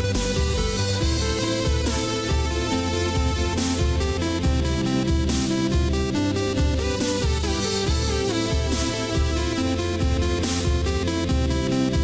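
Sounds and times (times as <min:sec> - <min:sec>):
electronic music with bass beat: 0:00.0 - 0:12.0.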